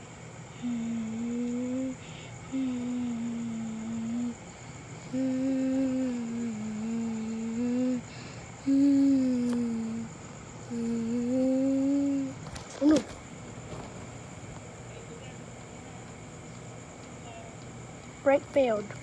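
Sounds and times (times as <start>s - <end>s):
person humming long notes: 0.5s - 4.4s, 5.0s - 10.1s, 10.7s - 12.4s.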